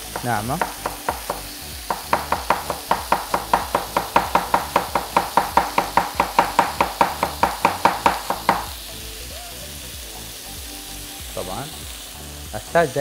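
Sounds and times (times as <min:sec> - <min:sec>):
knife chopping on cutting board: 0:00.0 - 0:08.8.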